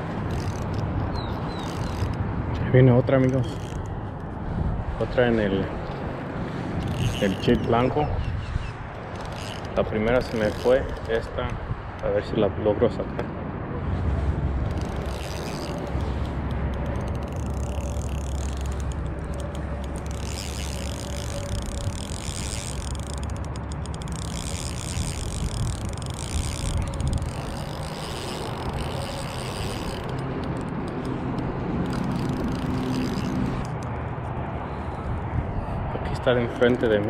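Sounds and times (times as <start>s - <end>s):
wind rumble on microphone: 0.0s - 37.0s
spinning reel being cranked: 0.3s - 2.2s, 3.2s - 4.3s, 6.8s - 7.9s, 9.0s - 11.3s, 14.6s - 31.2s, 31.8s - 33.8s.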